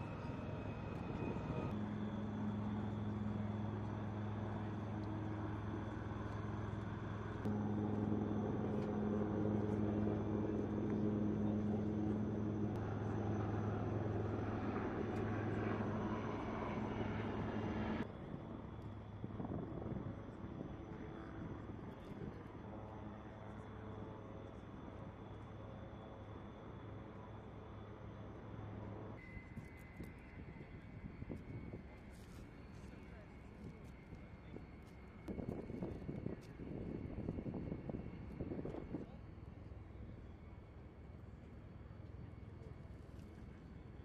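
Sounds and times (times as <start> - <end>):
low hum: 0.0 - 18.1
aircraft engine drone: 0.0 - 44.0
open-air noise: 0.0 - 44.0.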